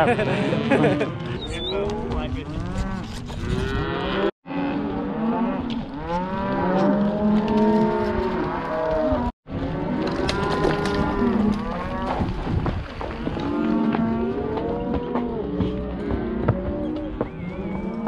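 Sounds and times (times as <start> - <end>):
cows and calves bawling: 0.1 - 12.4, 13.1 - 18.0.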